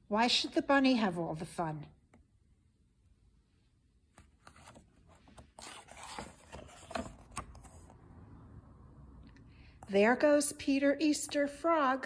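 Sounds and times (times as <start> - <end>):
book pages rustling: 4.1 - 8.1.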